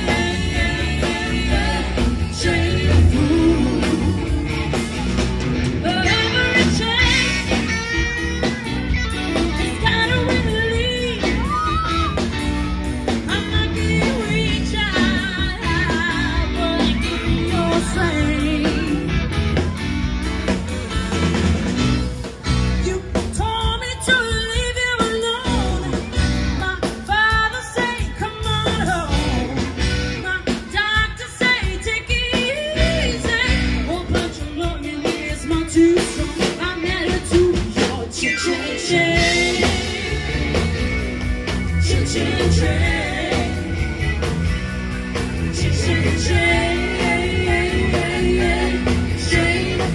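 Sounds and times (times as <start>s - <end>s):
people singing: 0.0s - 5.2s, 5.8s - 7.5s, 13.2s - 19.2s, 30.8s - 49.9s
drum kit: 0.0s - 49.9s
electric guitar: 0.0s - 49.9s.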